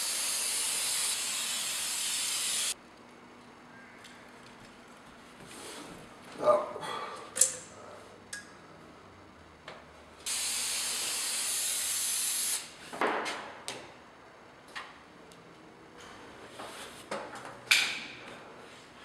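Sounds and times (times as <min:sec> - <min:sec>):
aerosol can spraying: 0:00.0 - 0:02.8.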